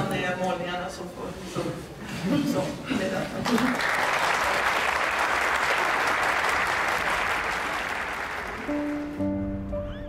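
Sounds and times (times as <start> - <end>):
applause: 3.4 - 9.2
music with sustained chord: 8.6 - 10.0.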